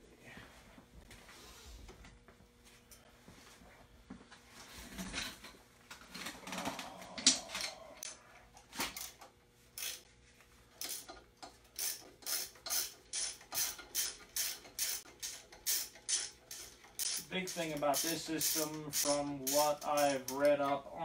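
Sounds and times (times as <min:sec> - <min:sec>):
socket ratchet ratcheting: 0:11.8 - 0:20.4.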